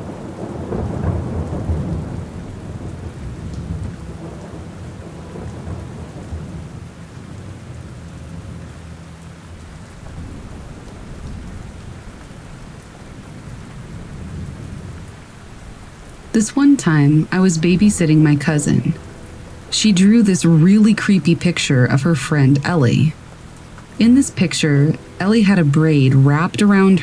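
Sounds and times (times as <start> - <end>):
low rumble of thunder: 0.0 - 17.3
steady rain: 0.0 - 27.0.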